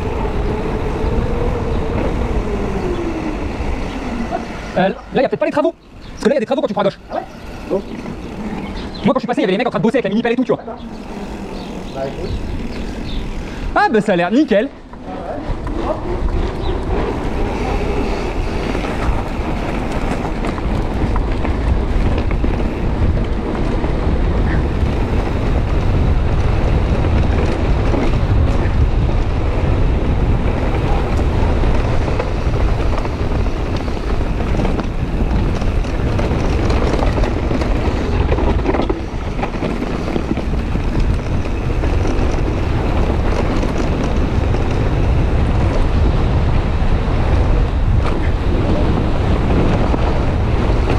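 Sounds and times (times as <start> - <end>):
wind buffeting camera: 0.0 - 50.9
bike clicks and rattles: 5.4 - 46.6, 47.2 - 50.9
tyre noise on dirt and rock: 15.7 - 46.4.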